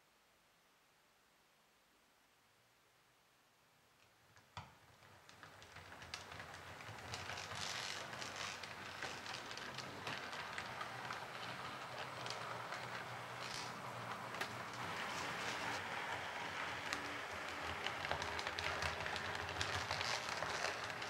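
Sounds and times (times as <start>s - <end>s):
model train wheels clicking: 5.0s - 21.0s.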